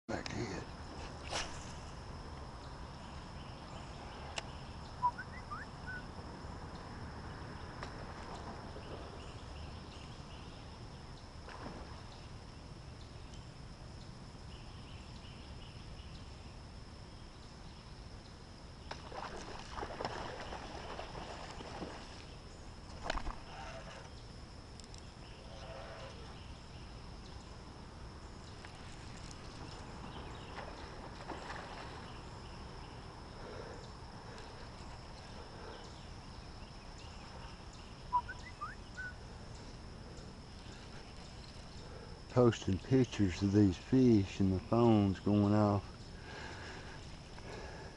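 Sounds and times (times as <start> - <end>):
birds calling: 1.4 - 6.2, 18.9 - 47.9
sharp splash: 18.9 - 22.2
lure splashing water: 18.9 - 22.3
faint high whine: 19.1 - 46.2.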